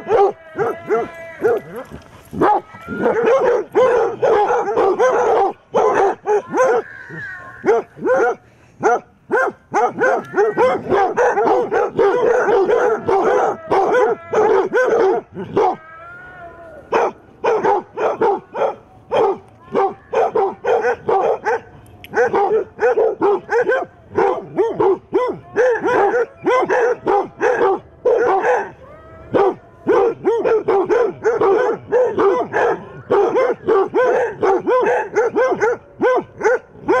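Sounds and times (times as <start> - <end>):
dogs barking: 0.0 - 15.8, 16.9 - 37.0.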